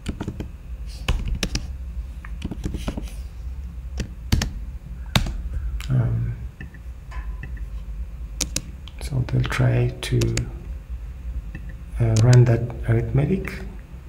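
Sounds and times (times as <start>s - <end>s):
computer keyboard keystrokes: 0.0s - 0.5s, 1.1s - 1.7s, 2.3s - 3.0s, 4.0s - 5.4s, 8.4s - 8.7s, 10.2s - 10.5s, 11.5s - 12.5s.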